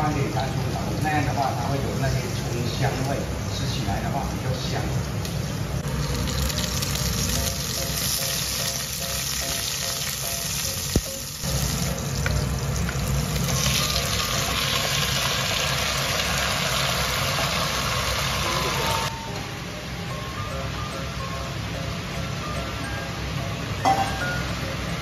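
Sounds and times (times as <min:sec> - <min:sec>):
garlic sizzling in oil: 0:05.0 - 0:19.1.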